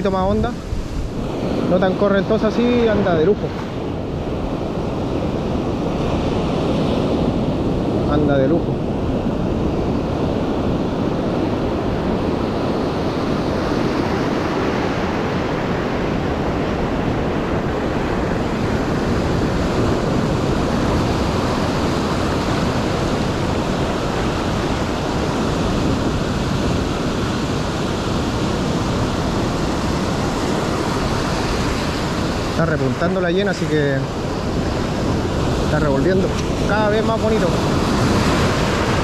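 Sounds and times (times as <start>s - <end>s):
ocean surf breaking on beach: 0.0s - 39.0s.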